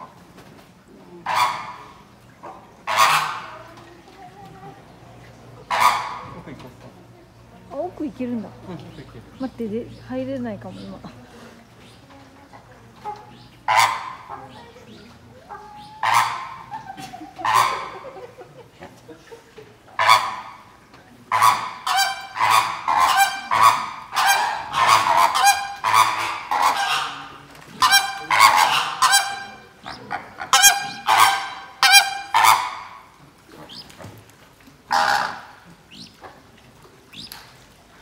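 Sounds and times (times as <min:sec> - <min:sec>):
birds honking: 0:01.2 - 0:03.8, 0:05.6 - 0:06.5, 0:12.9 - 0:18.3, 0:20.0 - 0:34.0, 0:34.8 - 0:36.2.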